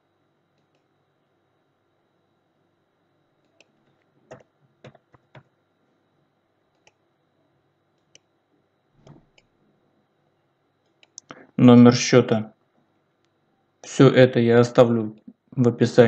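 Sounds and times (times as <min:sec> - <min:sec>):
mouse and keyboard clicks: 0:03.4 - 0:05.5.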